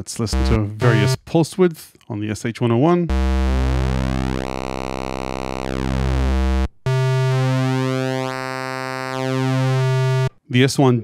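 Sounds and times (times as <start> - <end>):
synthesizer pulse-wave note: 0.4 - 1.2, 3.1 - 10.3.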